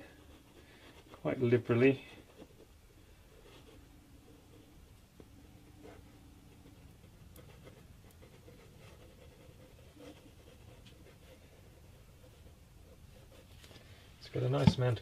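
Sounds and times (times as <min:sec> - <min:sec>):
faint room hum: 0:00.0 - 0:15.0
glue bottle ticks and scratches: 0:05.2 - 0:12.6.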